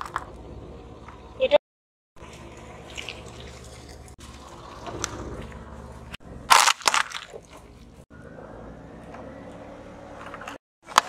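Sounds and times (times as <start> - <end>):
objects crunching under car tyre: 2.2 - 8.0, 10.2 - 11.0
glass bottle cracking: 6.5 - 7.4.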